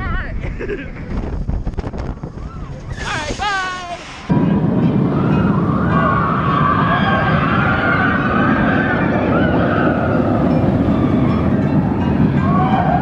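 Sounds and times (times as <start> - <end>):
roller coaster rumbling on track: 0.0 - 13.0
riders screaming: 5.0 - 13.0.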